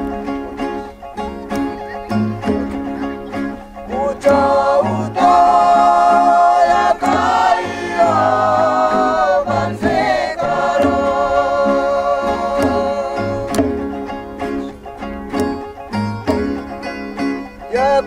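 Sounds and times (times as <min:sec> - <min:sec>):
group singing long wavering notes: 0:03.6 - 0:14.8.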